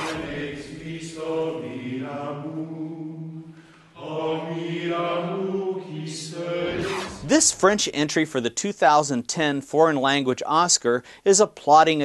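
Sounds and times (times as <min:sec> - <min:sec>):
men chanting together: 0:00.0 - 0:07.3.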